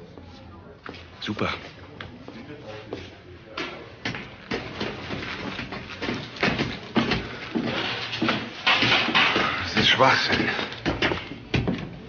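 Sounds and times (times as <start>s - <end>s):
footsteps on metal grating stairs: 3.0s - 12.0s.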